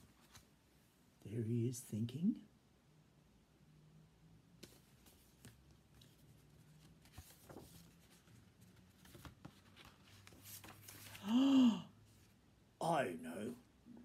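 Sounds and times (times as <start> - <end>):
book pages turning: 0.0 - 0.5, 4.6 - 11.3.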